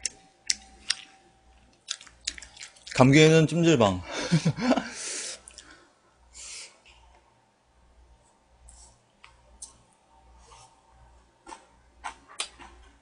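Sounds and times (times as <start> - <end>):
faint chewing: 0.0 - 3.0, 5.4 - 5.8.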